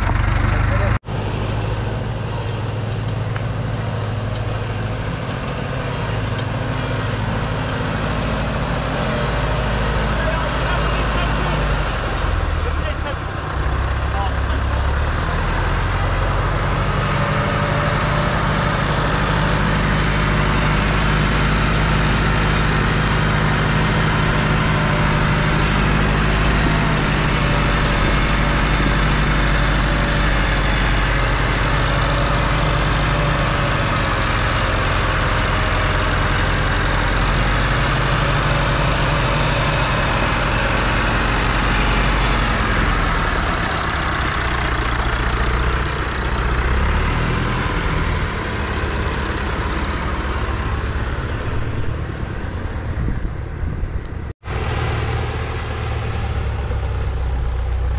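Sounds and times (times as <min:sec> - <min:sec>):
tractor engine humming: 0:00.0 - 0:57.9.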